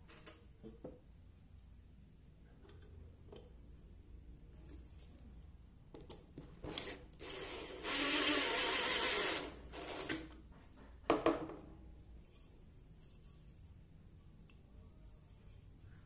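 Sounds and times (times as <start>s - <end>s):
impact driver driving screw: 6.7s - 10.2s.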